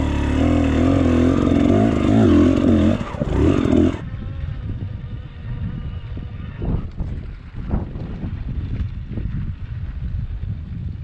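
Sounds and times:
motorcycle engine revving: 0.0s - 4.5s
wind buffeting microphone: 0.0s - 11.0s.

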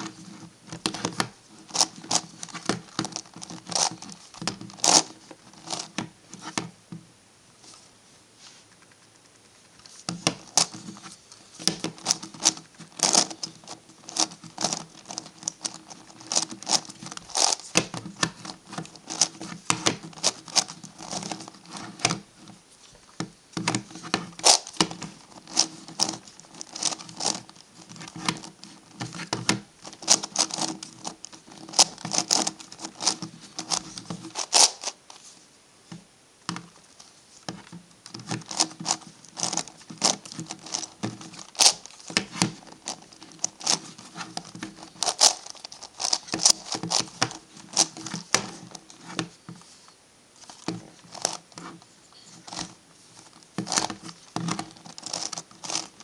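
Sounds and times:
plastic puzzle clicking when twisted: 23.6s - 35.2s, 37.6s - 49.3s, 53.6s - 56.0s.

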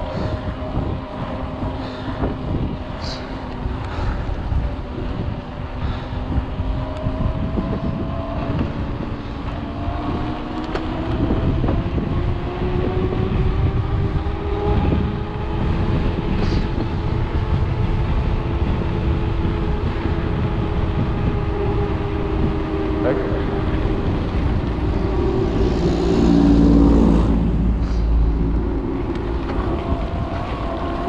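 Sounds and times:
mountain bike rumbling on trail: 0.0s - 31.0s
wind buffeting microphone: 0.0s - 31.0s
faint rising humming tone: 18.6s - 31.0s.

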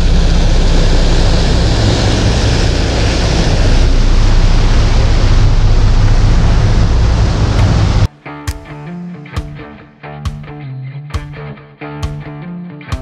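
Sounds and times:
boat engines humming: 0.0s - 8.1s
churning wake rushing: 0.0s - 8.1s
wind: 0.0s - 8.2s.

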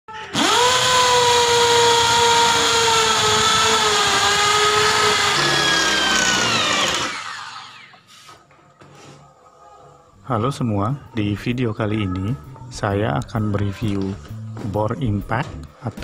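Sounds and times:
impact drill whining: 0.2s - 8.1s.

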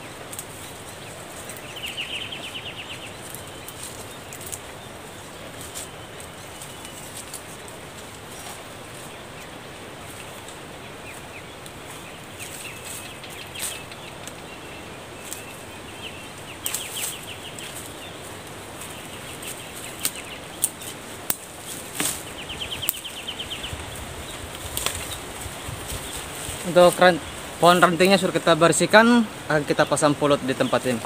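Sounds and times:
leaves rustling: 0.0s - 31.0s
steady outdoor hiss: 0.0s - 31.0s
twigs snapping: 0.3s - 8.7s, 10.2s - 14.5s, 15.2s - 15.6s, 16.6s - 27.0s
small ticks: 3.2s - 4.7s.

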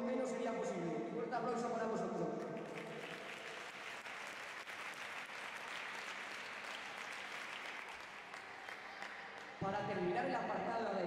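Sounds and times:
audience clapping: 2.4s - 9.7s.

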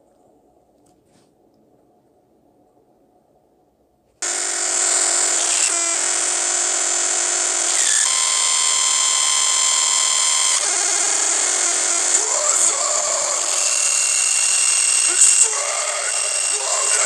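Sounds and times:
loud harsh buzzing: 4.2s - 17.0s
whining tones: 4.2s - 17.0s.

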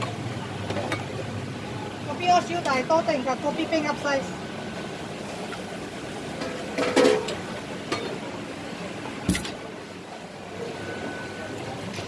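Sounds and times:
steady background hum: 0.0s - 12.0s
metal cookware clinking and knocking: 6.4s - 8.2s.

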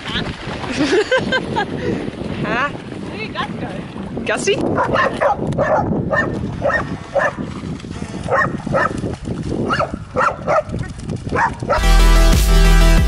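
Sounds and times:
dog barking: 4.8s - 7.4s, 8.3s - 9.0s, 9.7s - 11.9s
electronic dance music: 11.8s - 13.0s.

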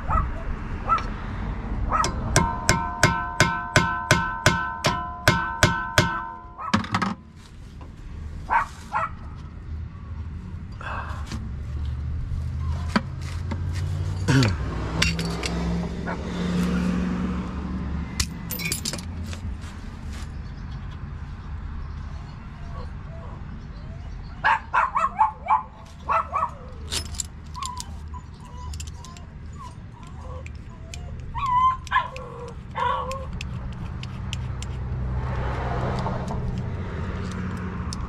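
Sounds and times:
ringing metal strikes: 2.0s - 7.2s.

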